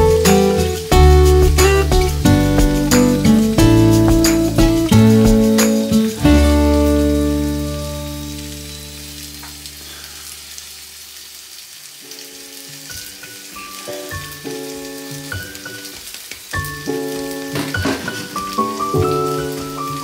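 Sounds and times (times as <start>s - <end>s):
held music chord: 0.0s - 9.2s
plucked notes: 0.0s - 9.6s, 16.8s - 20.0s
faint crackling hiss: 0.0s - 20.0s.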